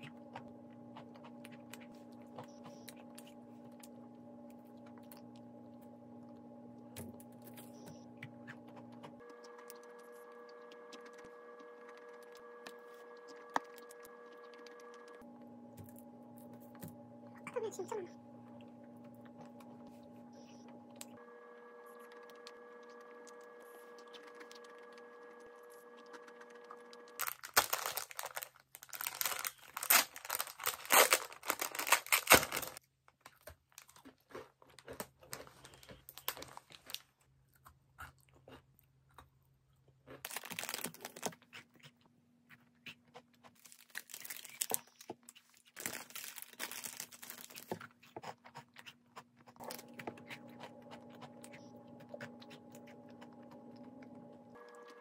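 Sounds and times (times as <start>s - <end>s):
cookies being chewed: 0.0s - 55.0s
plastic wrapper crinkling: 26.0s - 37.1s, 40.2s - 41.5s, 43.5s - 48.0s.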